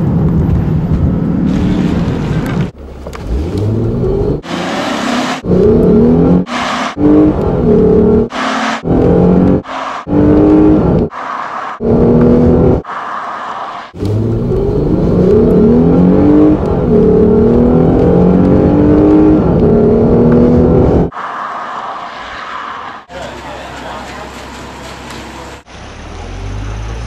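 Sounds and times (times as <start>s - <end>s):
car engine accelerating: 0.8s - 12.9s, 13.9s - 21.1s.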